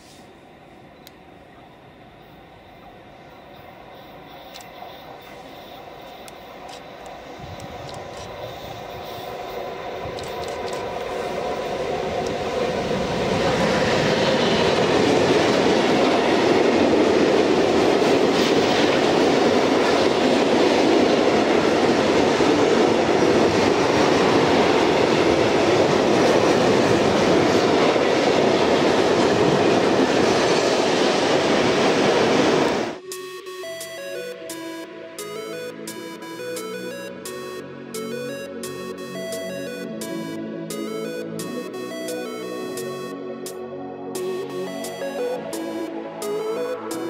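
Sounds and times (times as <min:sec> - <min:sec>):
freight train rolling past: 0:00.0 - 0:47.0.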